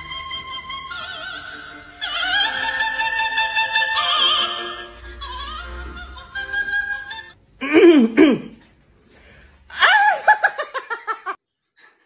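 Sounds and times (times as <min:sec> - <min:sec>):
sliding vocal outburst: 0:07.6 - 0:08.6
man laughing loudly: 0:09.8 - 0:11.4.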